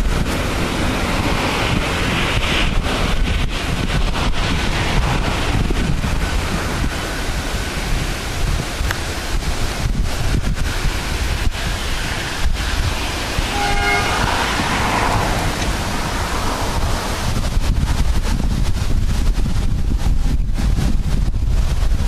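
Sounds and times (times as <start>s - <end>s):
wind buffeting microphone: 0.0s - 22.0s
railway horn toot: 13.1s - 16.4s.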